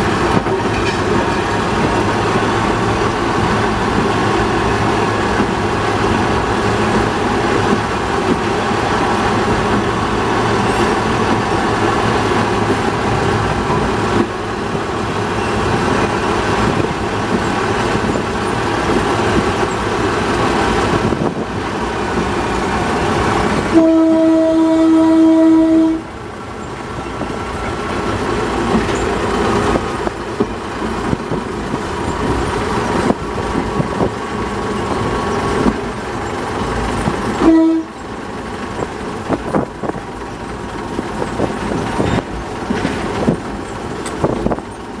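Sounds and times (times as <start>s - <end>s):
diesel locomotive running on track: 0.0s - 45.0s
locomotive horn blast: 23.6s - 26.2s, 37.4s - 38.0s.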